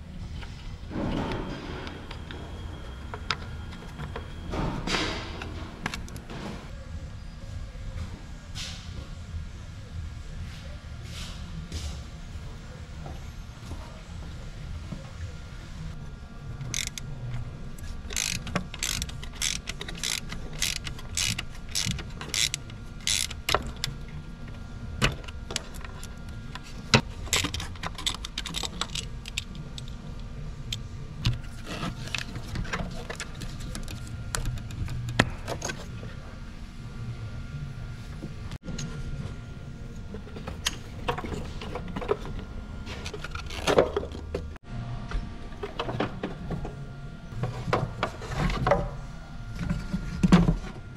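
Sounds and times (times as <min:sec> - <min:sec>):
parts clicking and rattling: 0:00.4 - 0:06.4, 0:16.6 - 0:36.0
socket wrench clicking: 0:16.7 - 0:17.0, 0:18.1 - 0:23.9.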